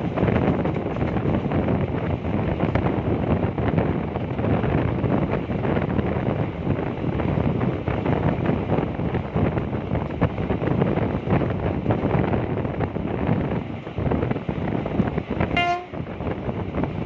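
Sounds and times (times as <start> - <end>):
train running on track: 0.0 - 17.0
wind buffeting microphone: 0.0 - 17.0.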